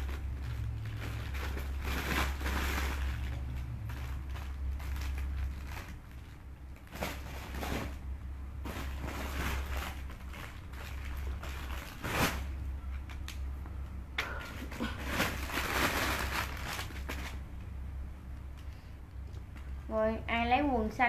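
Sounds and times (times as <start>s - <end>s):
packaging crinkle: 0.0s - 13.5s, 14.2s - 17.5s
clothes and packaging rustling: 0.0s - 20.9s
steady low hum: 0.0s - 21.0s.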